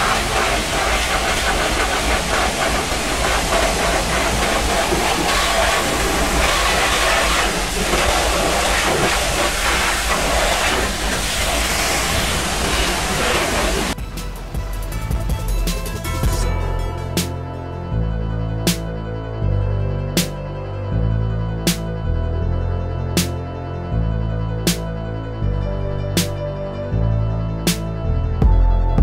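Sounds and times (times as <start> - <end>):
pressure washer spraying metal: 0.0 - 14.0.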